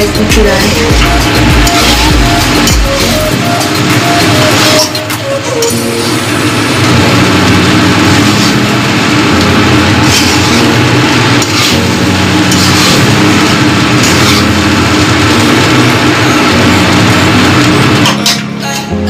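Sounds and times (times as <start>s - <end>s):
spatulas scraping pan: 0.0s - 6.2s, 8.0s - 8.8s, 9.4s - 15.8s
rice sizzling in pan: 0.6s - 4.9s, 6.0s - 18.3s.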